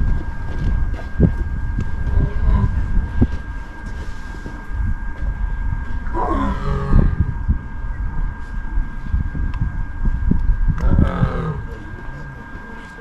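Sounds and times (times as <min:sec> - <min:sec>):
steady low rumble: 0:00.0 - 0:13.0
lion call: 0:06.0 - 0:07.3, 0:10.8 - 0:12.4.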